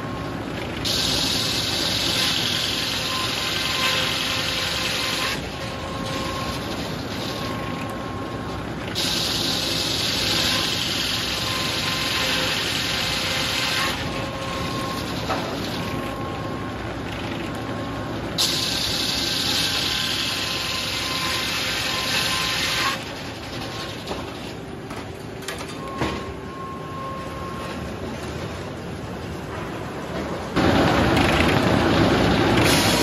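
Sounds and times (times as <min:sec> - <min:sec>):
circular saw cutting wood: 0:01.3 - 0:05.4.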